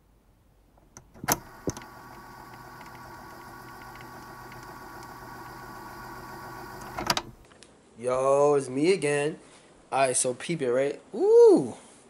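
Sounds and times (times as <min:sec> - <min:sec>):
steady mechanical hum: 0:00.8 - 0:07.6.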